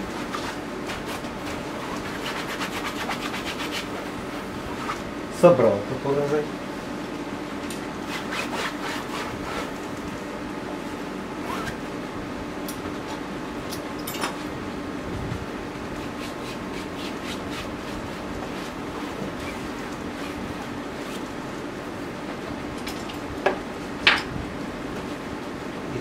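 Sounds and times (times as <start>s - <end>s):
rag rubbing paint on canvas: 0.0s - 4.0s, 8.1s - 9.8s, 16.0s - 21.3s.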